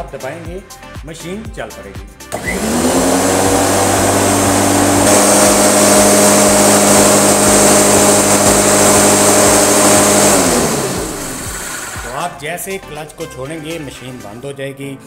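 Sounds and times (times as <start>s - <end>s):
electric lawn mower whining: 2.3s - 12.4s.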